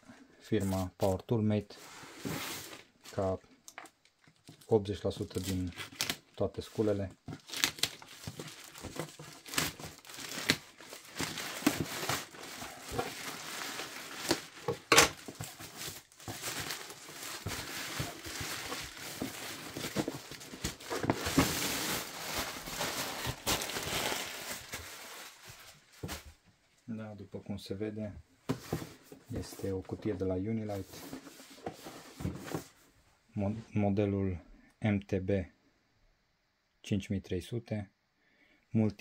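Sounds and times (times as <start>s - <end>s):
plastic bag crinkling and rustling: 2.3s - 26.4s
plastic tearing: 4.4s - 25.7s.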